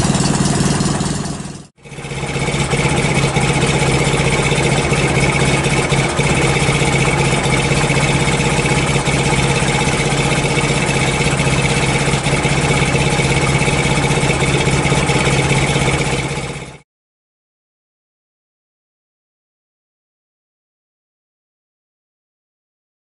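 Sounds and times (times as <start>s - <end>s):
motorcycle exhaust running steadily: 0.0s - 16.8s.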